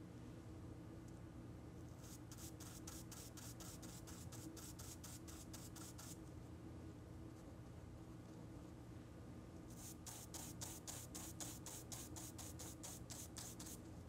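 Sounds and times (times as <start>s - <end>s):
brush dabbing on paper: 1.9s - 6.2s, 9.7s - 13.9s.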